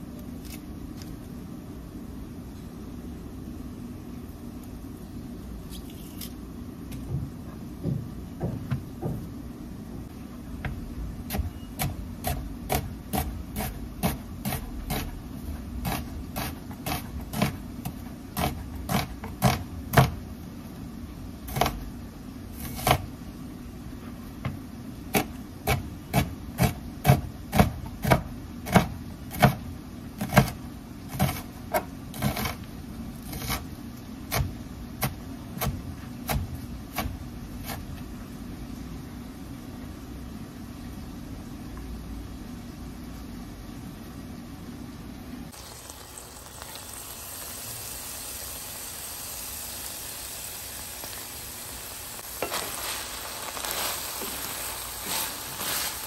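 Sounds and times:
knife chopping on cutting board: 10.6s - 15.2s, 15.8s - 20.2s, 25.1s - 29.6s.

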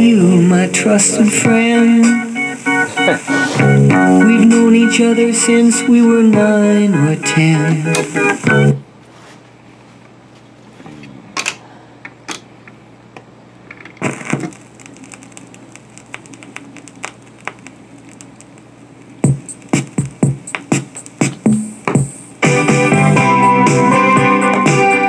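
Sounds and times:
music: 0.0s - 8.8s, 19.2s - 25.0s
vinyl crackles and pops: 0.0s - 8.8s, 12.7s - 25.0s
record dropping with a thump: 13.8s - 23.0s.

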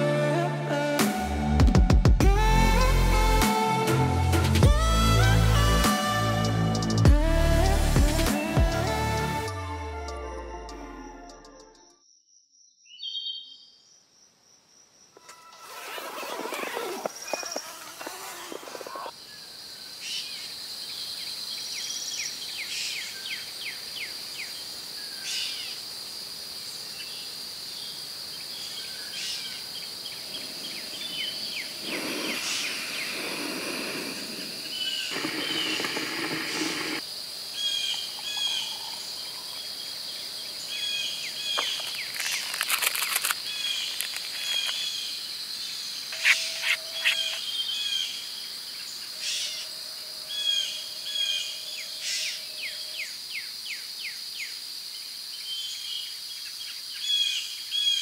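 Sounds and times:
birds chirping and calling: 37.6s - 42.6s, 45.7s - 48.2s
handling or rustling noise: 41.6s - 44.8s
high-pitched insect drone: 46.1s - 47.9s.

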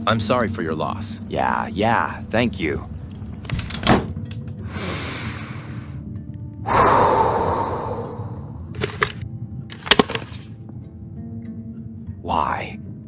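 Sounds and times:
quiet background music with drone: 0.0s - 13.0s
breathy rush of noise: 6.6s - 8.7s.

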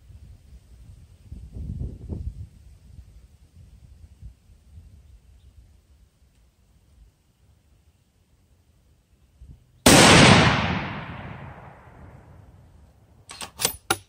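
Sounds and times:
rifle shot echoing: 9.8s - 12.4s
rifle bolt clicking: 13.3s - 14.0s.

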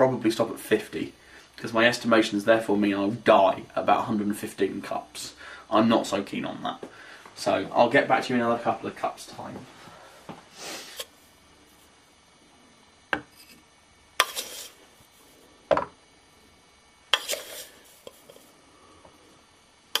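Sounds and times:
spoon scraping: 13.3s - 15.2s, 17.1s - 18.5s.

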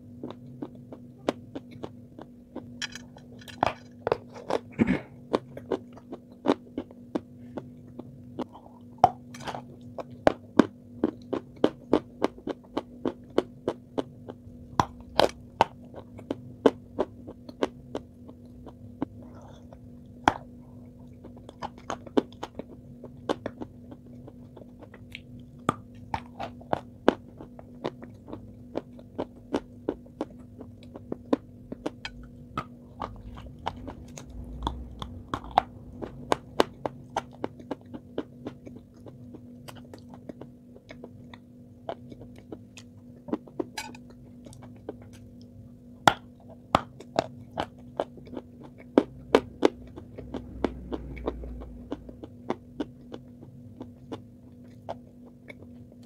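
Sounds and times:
crunchy chewing: 0.0s - 56.0s
low electrical hum: 0.0s - 56.0s.

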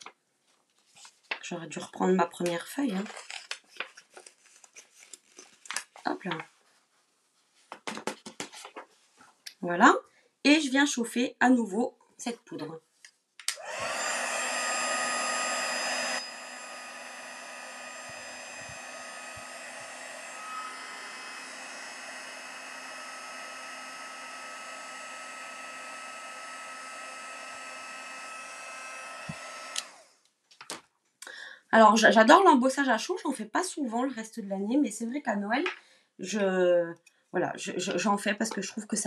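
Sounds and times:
heat gun blowing air: 13.5s - 30.2s.

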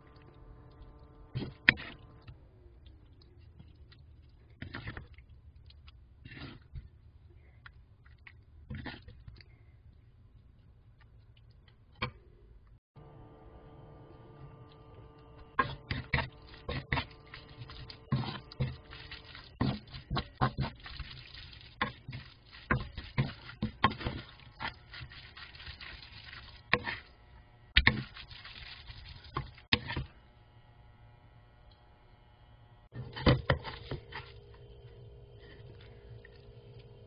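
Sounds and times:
wooden spatula scraping a pan: 15.5s - 20.9s.

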